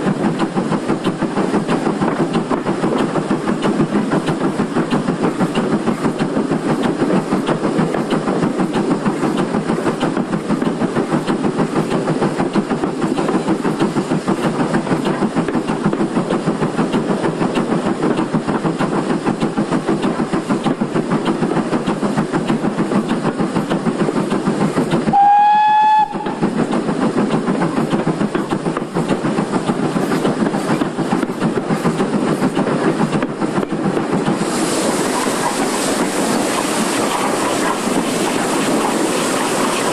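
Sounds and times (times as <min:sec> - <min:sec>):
steam locomotive running: 0:00.0 - 0:39.9
steam whistle: 0:25.1 - 0:26.4.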